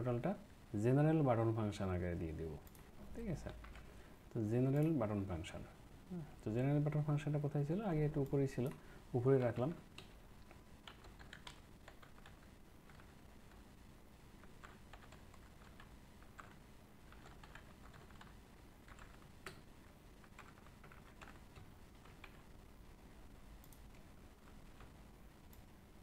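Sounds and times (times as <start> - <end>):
typing on computer keyboard: 9.4 - 13.2, 14.4 - 19.6, 20.2 - 22.4.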